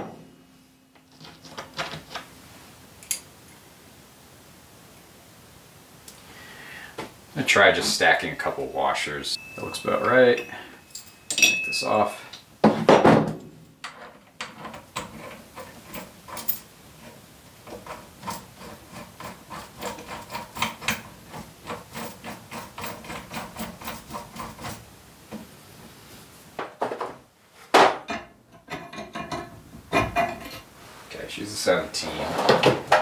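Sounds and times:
metal tools clinking: 0:08.4 - 0:12.4, 0:13.8 - 0:16.7.

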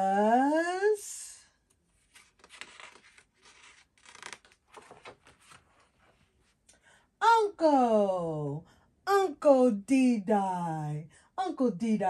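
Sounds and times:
paper page turning: 0:02.0 - 0:06.6.

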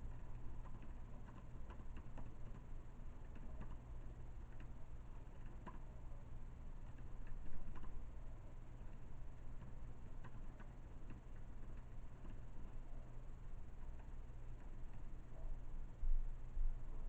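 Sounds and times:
steady low hum: 0:00.0 - 0:17.0
keyboard typing: 0:00.5 - 0:05.8, 0:06.9 - 0:08.0, 0:09.6 - 0:12.4.

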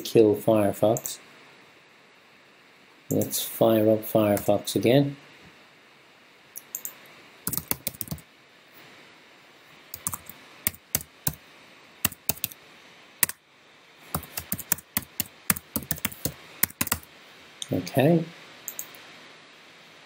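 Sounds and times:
typing on computer keyboard: 0:06.6 - 0:08.2, 0:10.0 - 0:11.4, 0:12.0 - 0:12.6, 0:14.2 - 0:17.1, 0:18.7 - 0:19.0.

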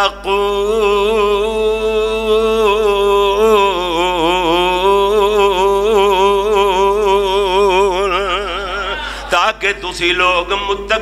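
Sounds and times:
man reciting melodically: 0:00.0 - 0:11.0.

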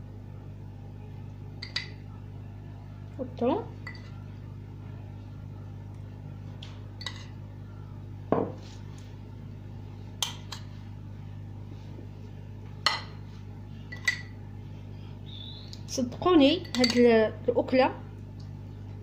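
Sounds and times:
metal spoon clinking on glass dish: 0:16.6 - 0:17.1.

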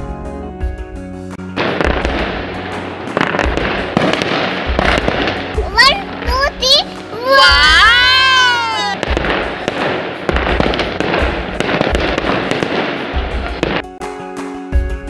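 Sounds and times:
background music with steady beat: 0:00.0 - 0:15.0
fireworks fizzing and crackling: 0:01.6 - 0:14.0
rising wow voice: 0:07.2 - 0:09.0.

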